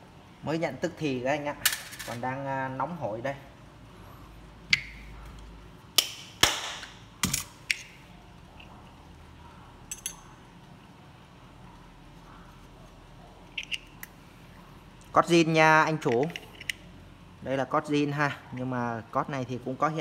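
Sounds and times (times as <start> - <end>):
metallic clinks and knocks: 9.9 - 10.3.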